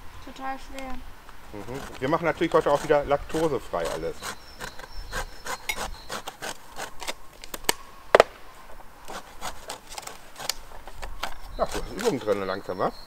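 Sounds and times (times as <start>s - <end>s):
lemon rasping on metal grater: 1.5s - 7.1s, 9.1s - 12.6s
sharp knock: 8.1s - 8.4s.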